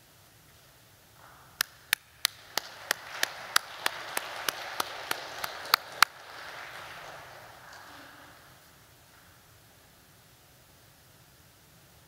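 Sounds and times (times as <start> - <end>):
close loud clapping: 1.6 - 9.3
soft scattered applause: 1.6 - 9.4.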